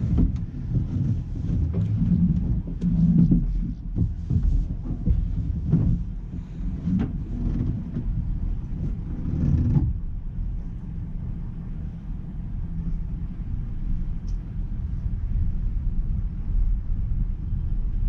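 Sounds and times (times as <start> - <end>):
vehicle engine and road rumble: 0.0 - 18.0.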